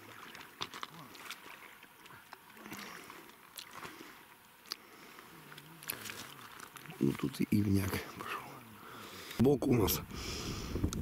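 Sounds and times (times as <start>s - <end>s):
small splashes: 0.0s - 9.4s
water lapping and splashing: 0.0s - 11.0s.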